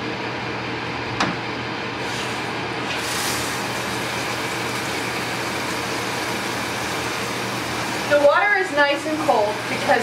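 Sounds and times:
shower head spraying water: 0:02.9 - 0:08.4.

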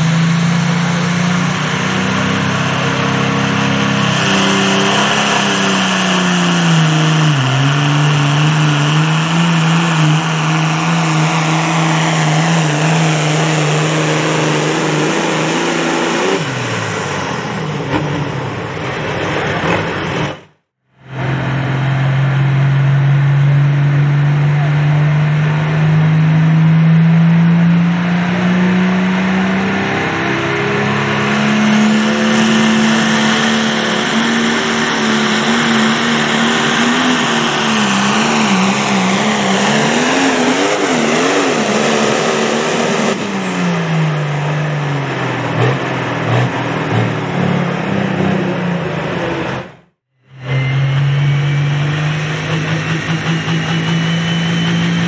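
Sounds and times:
high whine: 0:20.0 - 0:55.0.

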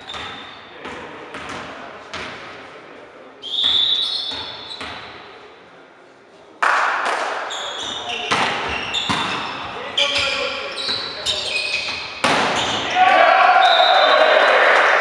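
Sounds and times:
referee's whistle: 0:03.4 - 0:04.8, 0:12.6 - 0:14.5
loud echoing smack: 0:12.2 - 0:12.6.

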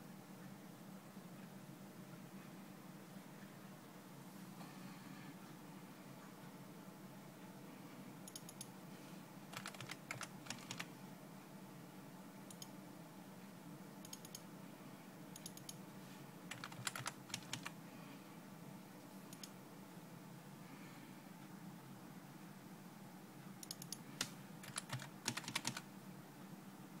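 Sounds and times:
low steady hum: 0:00.0 - 0:27.0
computer keyboard typing: 0:09.5 - 0:10.9, 0:14.0 - 0:14.4, 0:16.5 - 0:17.8, 0:23.6 - 0:25.8.

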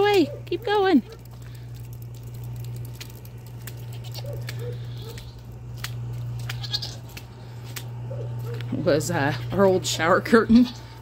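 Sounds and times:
steady low hum: 0:00.0 - 0:11.0
rain pattering: 0:00.8 - 0:06.5.

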